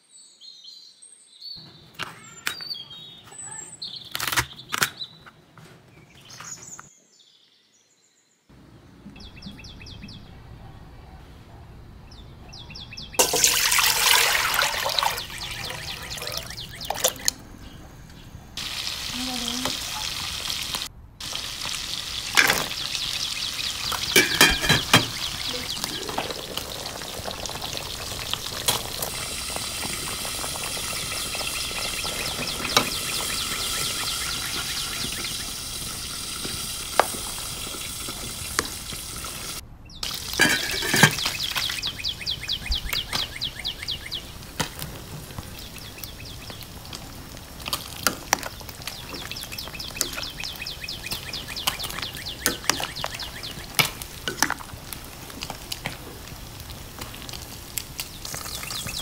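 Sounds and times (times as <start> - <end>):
soup bubbling in a pot: 13.2 - 17.4, 18.6 - 59.0.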